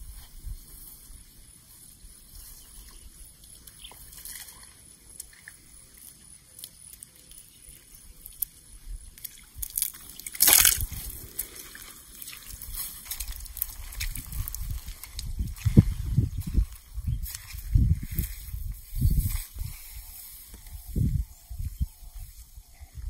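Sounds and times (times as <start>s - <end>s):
bare feet splashing in muddy water: 3.5s - 16.0s.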